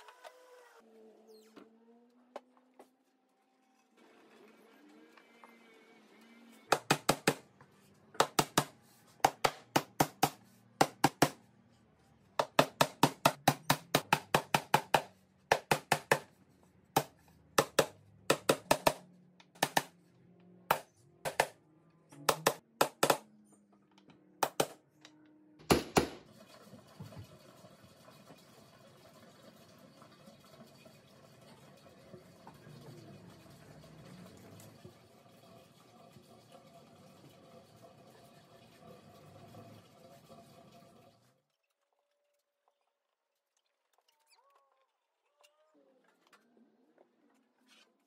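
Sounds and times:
hammer driving nails into wood: 22.2s - 23.2s, 25.6s - 26.2s.

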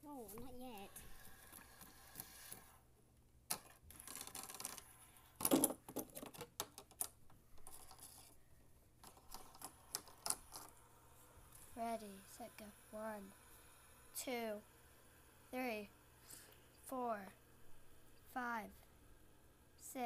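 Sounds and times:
objects handled on a tabletop: 3.5s - 10.8s.

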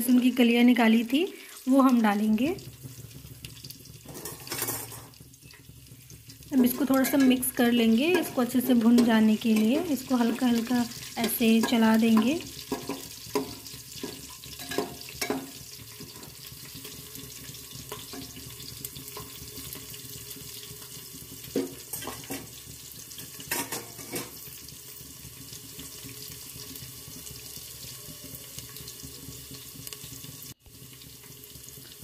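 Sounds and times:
spices sizzling in hot oil: 0.0s - 32.0s
metal ladle scraping pot: 4.0s - 5.6s, 6.6s - 9.9s, 10.9s - 17.0s, 23.2s - 24.4s.

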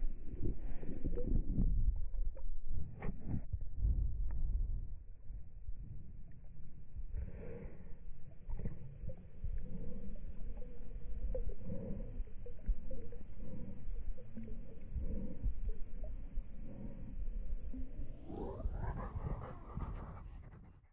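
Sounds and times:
low rumble: 0.0s - 7.6s, 9.0s - 20.9s
water lapping at waterline: 8.3s - 20.4s
dog panting: 18.4s - 20.9s.

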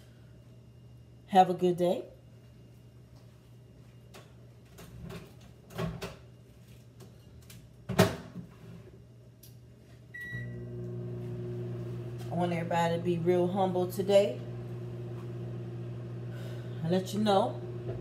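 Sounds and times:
appliance hum: 0.0s - 18.0s
short beep: 10.2s - 10.6s.

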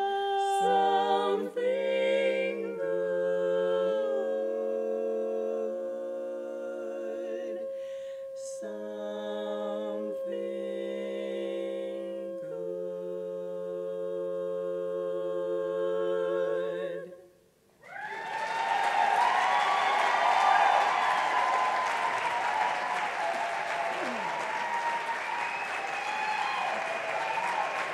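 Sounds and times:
women singing a cappella harmony: 0.0s - 17.4s
audience applause: 17.8s - 27.9s.

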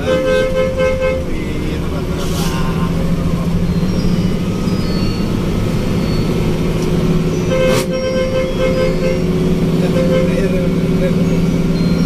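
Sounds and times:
horn sounding: 0.0s - 1.6s, 7.4s - 11.0s
bus diesel engine droning: 0.0s - 12.0s
road noise: 0.0s - 12.0s.

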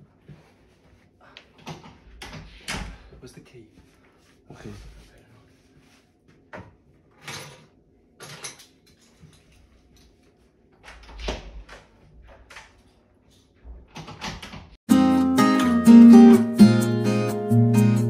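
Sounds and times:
door opening and shutting: 10.8s - 12.8s, 13.7s - 14.8s
acoustic guitar music: 14.9s - 18.0s.

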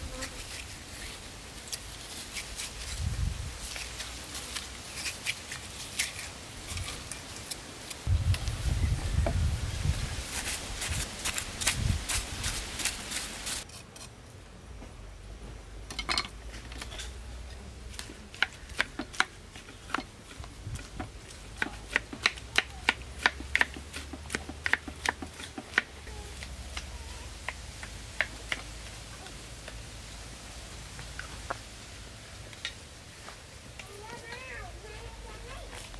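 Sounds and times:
knife chopping watermelon: 18.0s - 26.6s.

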